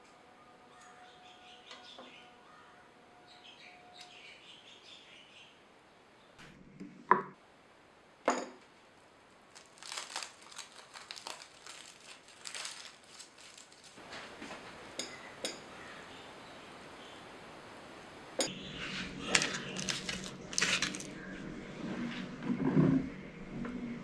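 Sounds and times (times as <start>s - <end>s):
aluminium foil crinkling: 9.5s - 14.3s, 19.4s - 21.2s.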